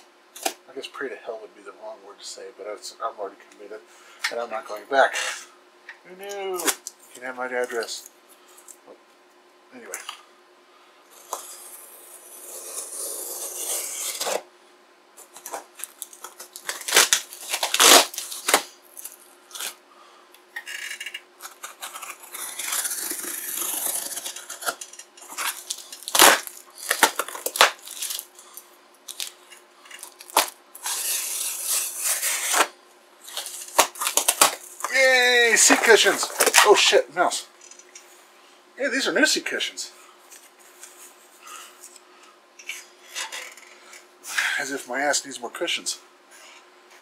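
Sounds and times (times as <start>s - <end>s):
packing tape and cardboard ripping: 11.1s - 14.5s, 15.2s - 19.8s, 20.6s - 36.9s.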